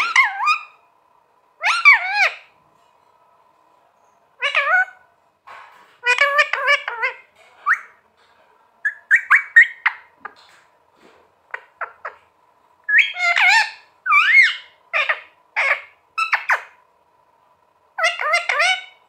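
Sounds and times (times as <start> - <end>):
parakeet chirps and whistles: 0.0 - 0.8, 1.6 - 2.5, 6.0 - 8.0, 8.8 - 10.1, 12.9 - 16.8, 18.0 - 19.0
faint steady hum: 0.0 - 19.0.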